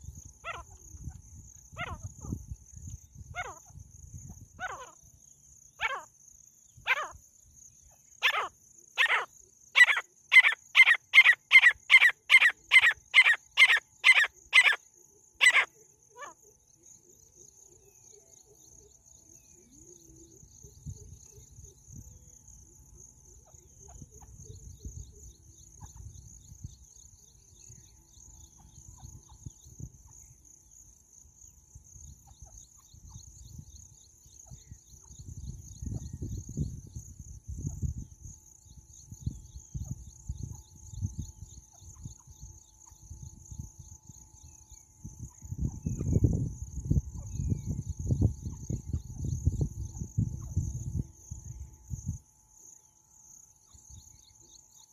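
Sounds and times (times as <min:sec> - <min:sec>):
faint high insect buzz: 0:00.0 - 0:54.9.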